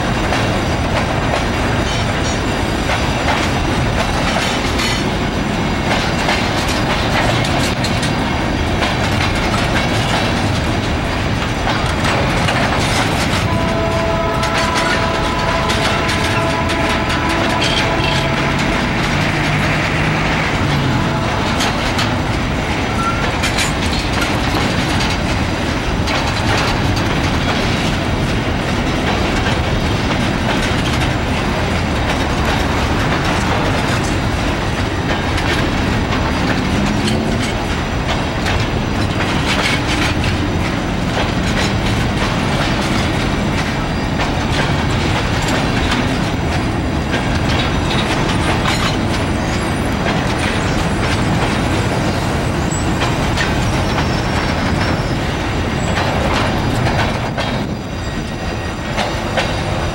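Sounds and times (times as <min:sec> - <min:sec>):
freight train rolling past: 0:00.0 - 0:59.9
wheels clattering on rails: 0:00.0 - 0:59.9
sharp clicks and knocks: 0:00.2 - 0:13.5, 0:14.4 - 0:49.3, 0:55.9 - 0:57.8.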